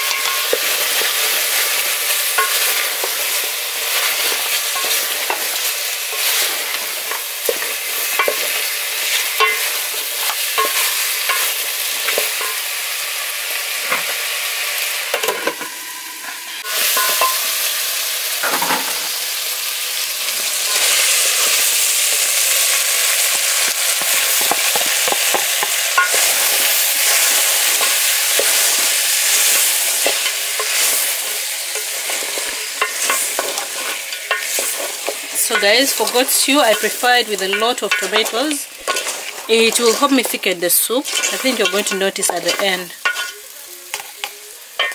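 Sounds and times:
meat sizzling in oil: 0:00.0 - 0:44.9
wooden spoon scraping a pot: 0:26.0 - 0:40.4, 0:41.0 - 0:43.4.

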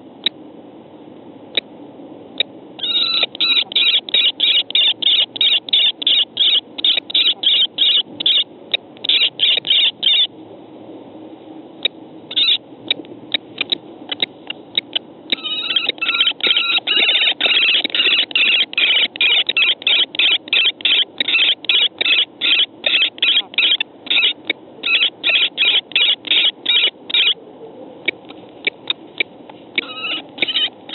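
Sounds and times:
kestrels shrill calling: 0:02.8 - 0:10.3, 0:12.3 - 0:12.6, 0:13.3 - 0:27.4, 0:29.8 - 0:30.9.

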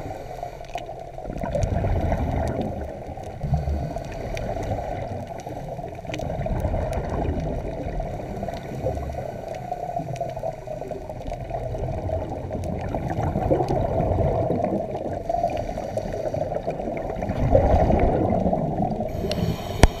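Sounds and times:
regulator bubbles gurgling: 0:00.0 - 0:20.0
underwater water rush: 0:00.0 - 0:20.0
faint clicks: 0:00.6 - 0:07.5, 0:19.1 - 0:20.0.

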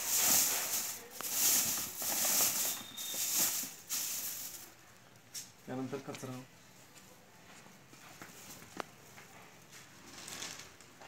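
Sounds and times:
dry straw rustling and crackling: 0:00.0 - 0:05.5.

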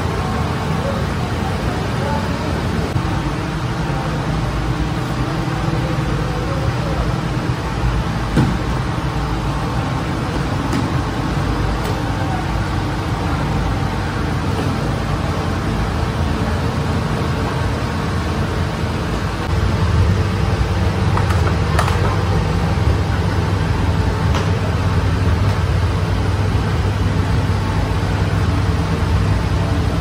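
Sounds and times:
bakery machinery humming: 0:00.0 - 0:30.0.

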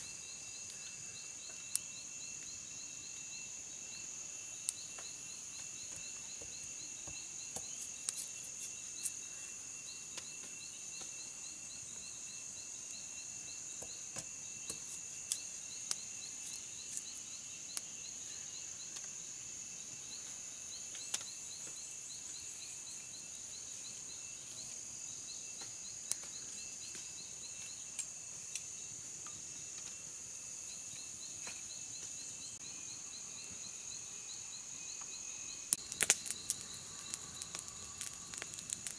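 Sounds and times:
insects droning: 0:00.0 - 0:38.9
sharp clicks: 0:35.7 - 0:38.9.

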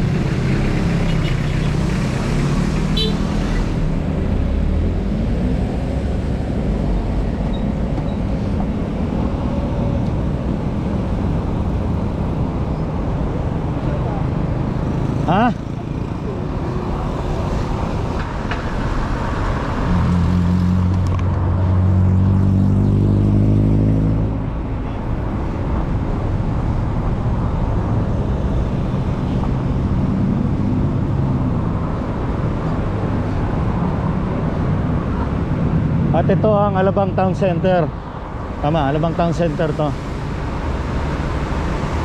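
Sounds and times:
road and wind noise: 0:00.0 - 0:42.0
motor vehicle passing: 0:13.5 - 0:24.9.

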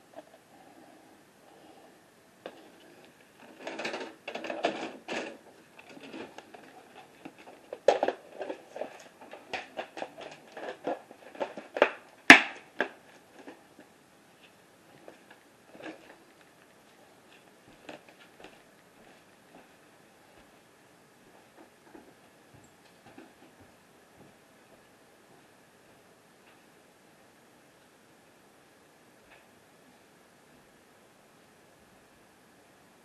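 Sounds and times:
tape recorder mechanical clicks and clunks: 0:02.5 - 0:13.6.

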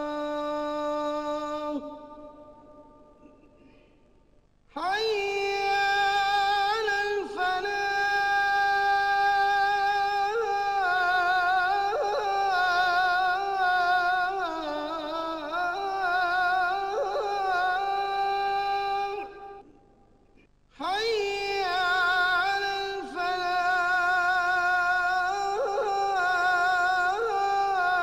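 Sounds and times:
person chanting with trills: 0:04.8 - 0:19.9, 0:20.8 - 0:28.0.

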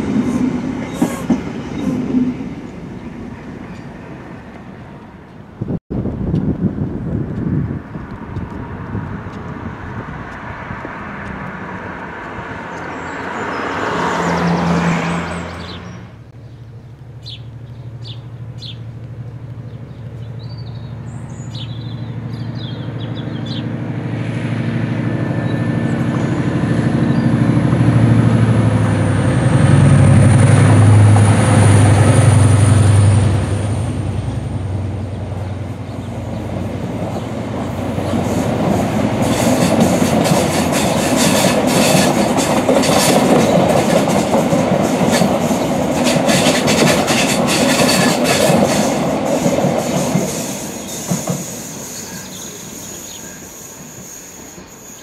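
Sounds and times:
diesel locomotive engine drone: 0:00.0 - 0:55.0
train coaches rumbling by: 0:00.0 - 0:55.0
train running away: 0:00.0 - 0:55.0
birds chirping: 0:12.6 - 0:23.8, 0:34.2 - 0:39.9, 0:50.7 - 0:55.0.

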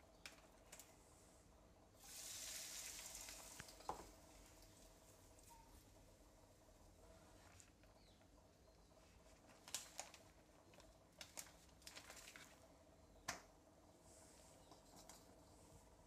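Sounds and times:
plastic sheet crinkling: 0:09.2 - 0:12.7.

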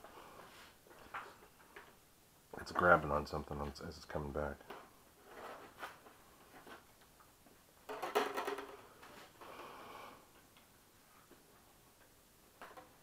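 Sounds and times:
wire rattling and scraping: 0:04.7 - 0:06.8.

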